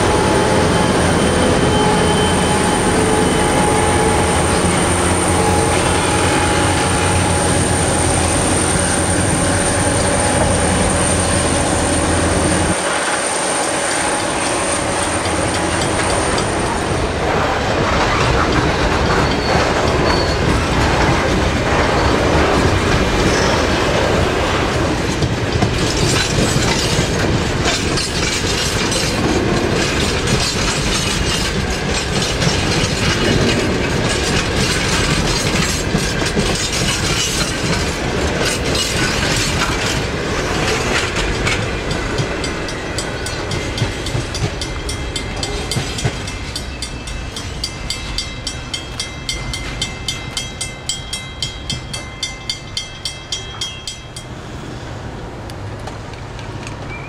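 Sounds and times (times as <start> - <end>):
high wheel squeal: 0.0 - 17.1, 19.0 - 20.8, 23.2 - 23.9
train wheels clattering over rail joints: 3.0 - 52.7.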